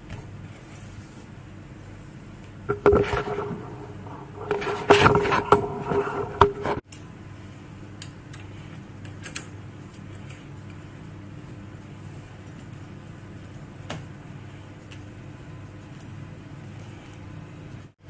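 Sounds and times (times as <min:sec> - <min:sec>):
low steady hum: 0:02.7 - 0:06.8
scooter parts knocking and clattering: 0:02.7 - 0:06.8.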